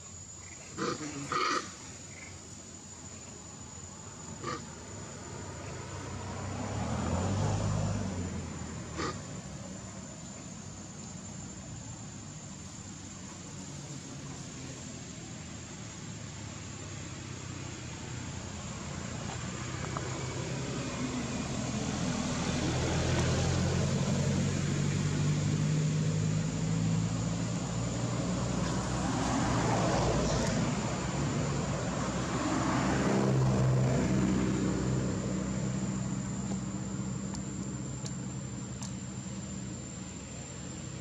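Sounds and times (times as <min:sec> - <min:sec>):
passing motor vehicles: 0:00.2 - 0:41.0.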